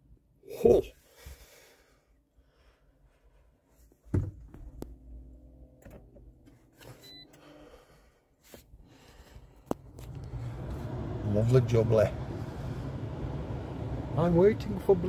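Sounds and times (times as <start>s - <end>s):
low steady hum: 4.3s - 8.2s.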